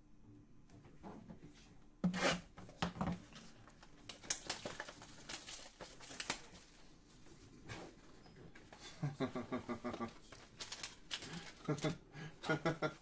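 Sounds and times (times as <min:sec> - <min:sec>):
wrapper and cardboard tearing: 0:03.4 - 0:06.9, 0:10.0 - 0:12.0.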